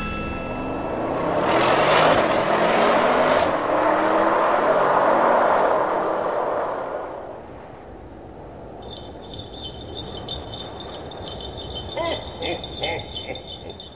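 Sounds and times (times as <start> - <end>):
jingling bells and chimes: 7.7 - 13.9.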